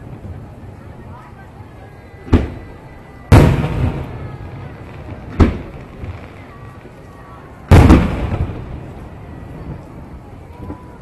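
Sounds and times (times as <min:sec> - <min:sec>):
rolling echo: 0:02.3 - 0:10.8.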